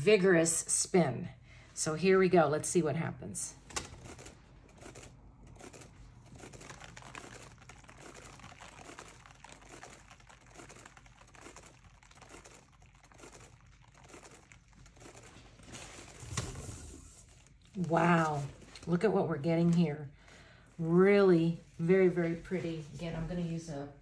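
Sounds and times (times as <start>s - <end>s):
turntable rattling and whirring: 3.7s - 17.7s.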